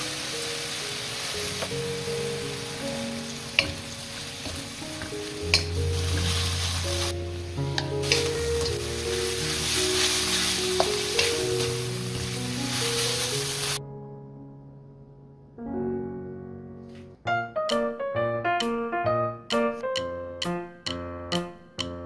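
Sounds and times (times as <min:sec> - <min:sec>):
seaweed sizzling in oil: 0:00.0 - 0:13.8
background music: 0:00.0 - 0:22.0
wooden spatula knocking on pan: 0:03.5 - 0:06.5, 0:10.7 - 0:12.4.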